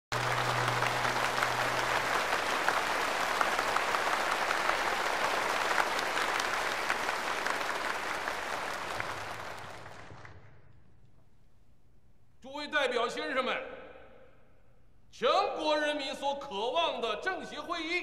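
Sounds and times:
large audience applauding: 0.1s - 10.7s.

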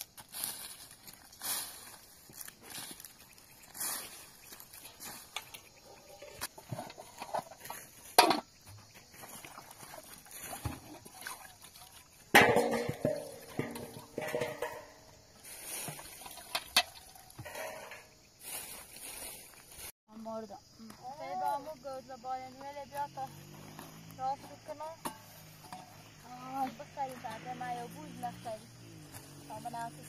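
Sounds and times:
metal pots clanking: 12.3s - 15.2s, 16.3s - 18.2s.

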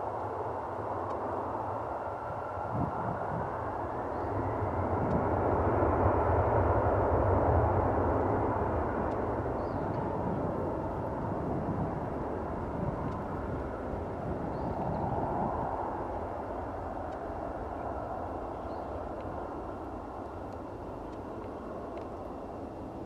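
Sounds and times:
jet engines at takeoff thrust: 0.0s - 23.0s.

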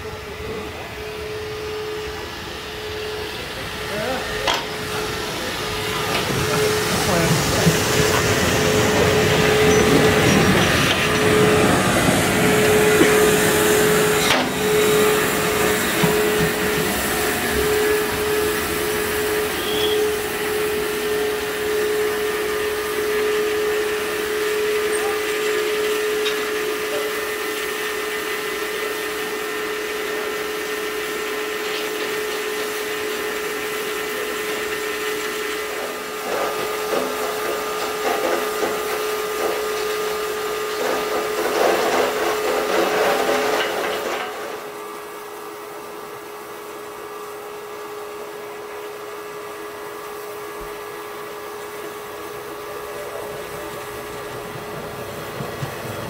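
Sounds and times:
steady whine: 0.0s - 25.1s
steam hissing: 0.0s - 48.4s, 49.5s - 56.0s.

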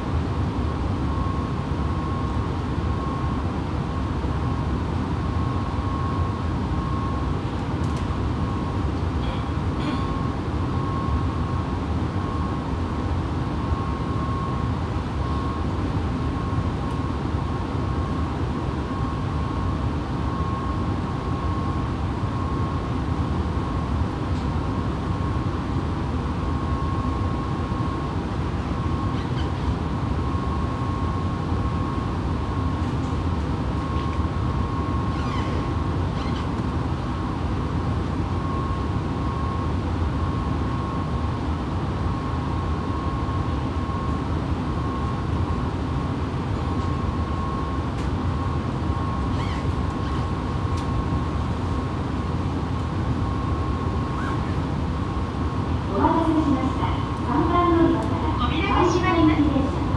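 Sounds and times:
train equipment hum and rumble: 0.0s - 59.9s.

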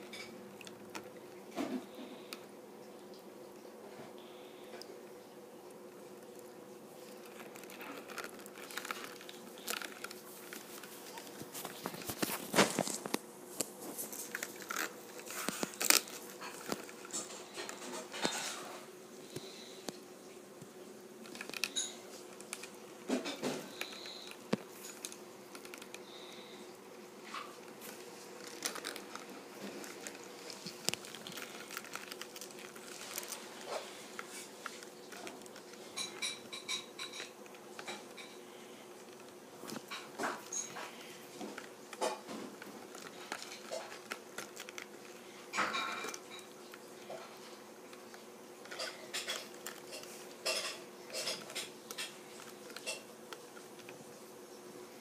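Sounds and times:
faint steady hum: 0.0s - 55.0s
crayfish clicking on plastic tray: 27.4s - 38.4s, 39.0s - 54.0s.

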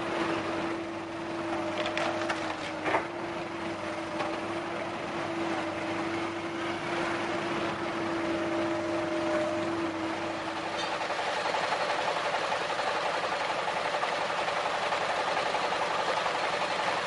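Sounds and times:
diesel engines humming: 0.0s - 17.0s
excavator bucket scraping soil: 1.5s - 3.2s.

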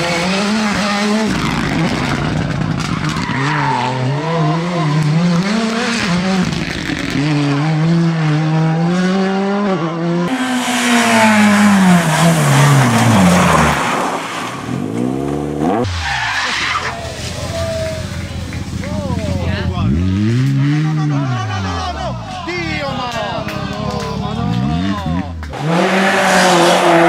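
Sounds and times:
rally car engine at high revs: 0.0s - 16.2s, 19.8s - 22.0s, 24.3s - 27.0s
loud rush of noise: 10.3s - 15.0s.

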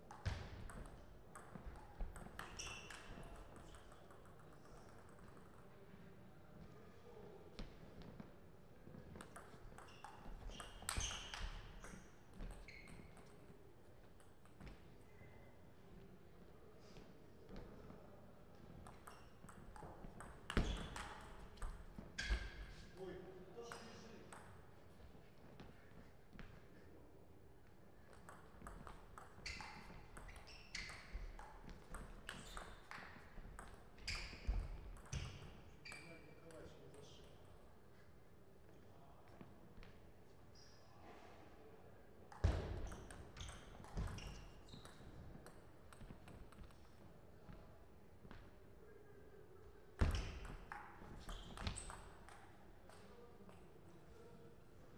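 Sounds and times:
sports shoes squeaking: 2.2s - 3.9s, 9.0s - 13.5s, 18.6s - 22.9s, 28.3s - 36.6s, 40.5s - 41.0s, 42.4s - 46.4s, 50.0s - 52.4s.

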